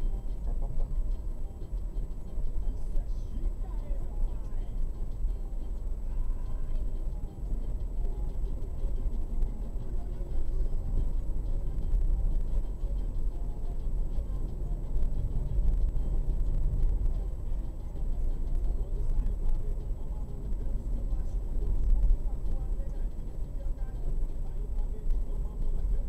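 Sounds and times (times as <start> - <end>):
car engine and tyre rumble: 0.0 - 26.0.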